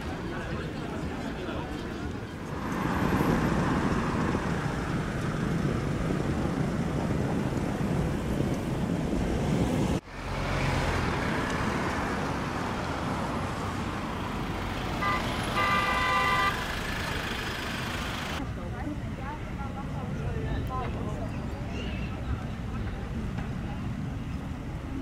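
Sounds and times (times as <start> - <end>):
road traffic rumble: 0.0 - 25.0
short car horn toot: 15.0 - 16.6.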